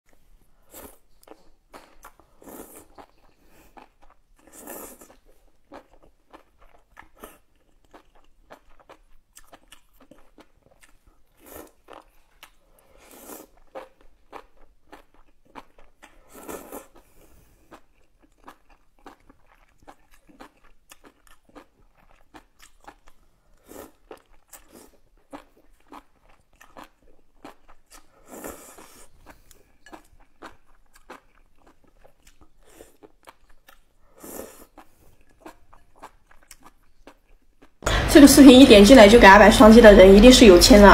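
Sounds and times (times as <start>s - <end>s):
wet chewing: 0.1s - 37.8s
noodle slurping: 34.1s - 36.4s.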